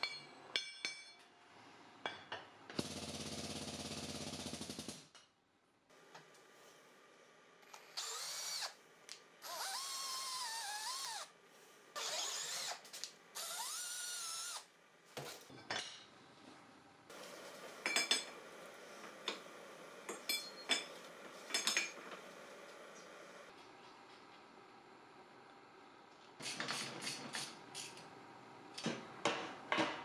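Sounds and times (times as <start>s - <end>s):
electric drill boring into steel: 7.9s - 8.8s, 9.4s - 11.3s, 12.0s - 12.8s, 13.4s - 14.7s.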